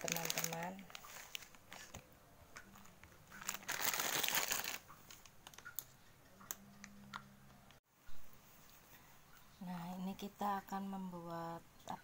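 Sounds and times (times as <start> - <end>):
plastic packet crinkling: 0.0 - 2.0, 2.6 - 5.9.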